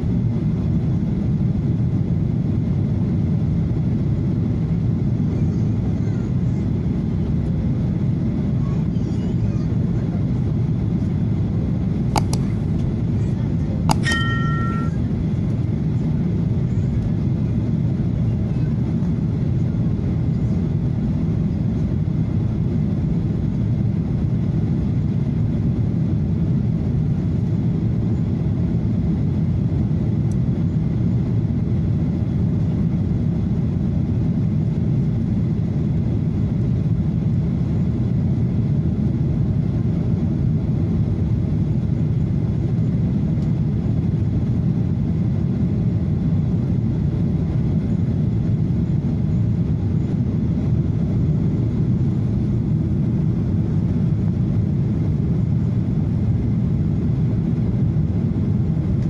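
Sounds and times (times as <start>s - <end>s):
faint steady whine: 1.3s - 29.0s
jet engines roaring: 9.7s - 18.2s.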